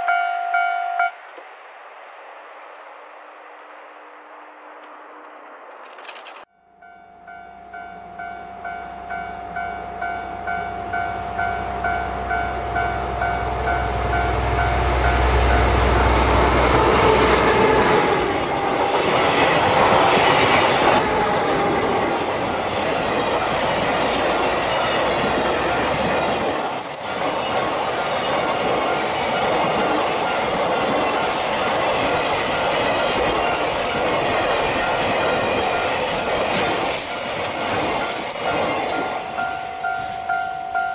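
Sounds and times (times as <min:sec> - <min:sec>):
diesel locomotive engine rumble: 0:02.7 - 0:40.9
level-crossing bell dinging: 0:06.5 - 0:16.9, 0:38.4 - 0:40.9
train wheels clattering on rails: 0:22.1 - 0:40.3.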